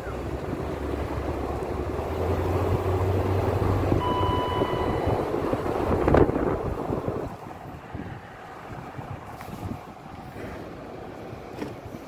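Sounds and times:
vehicle engine hum: 0.0s - 12.0s
wind buffeting microphone: 0.1s - 12.0s
high-pitched tone: 4.0s - 5.3s.

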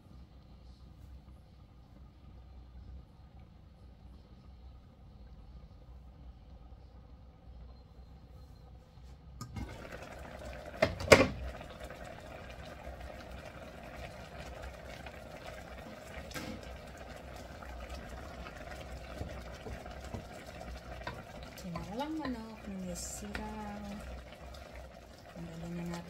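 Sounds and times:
broth simmering and bubbling: 0.1s - 8.2s, 9.4s - 26.0s
wooden spoon stirring pot: 9.4s - 26.0s.

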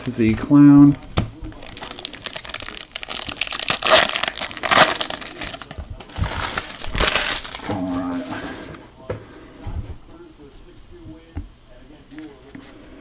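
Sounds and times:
foil wrapper crinkling: 1.5s - 8.3s.

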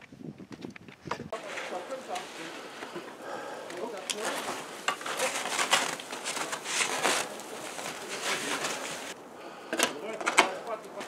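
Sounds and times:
skis scraping in snow: 1.3s - 9.2s.

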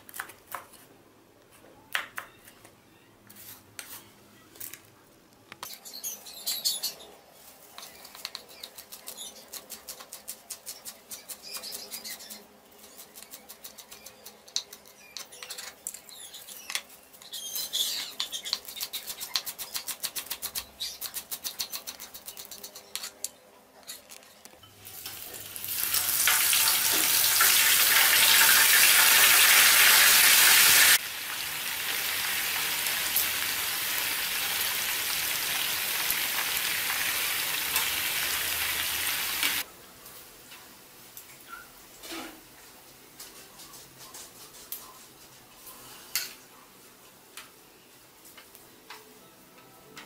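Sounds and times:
meat sizzling in frying pan: 25.0s - 39.6s.

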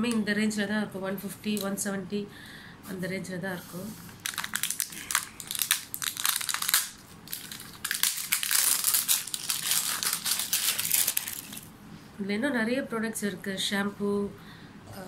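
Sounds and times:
plastic packaging crinkling: 4.2s - 11.7s.

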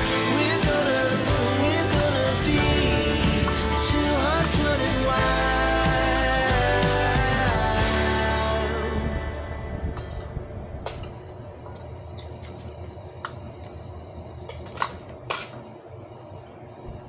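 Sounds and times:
low background rumble: 0.0s - 14.6s.

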